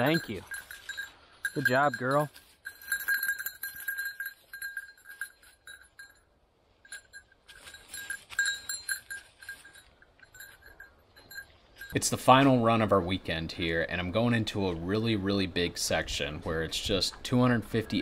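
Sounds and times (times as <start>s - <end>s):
dog bell jingling: 0.0s - 12.7s.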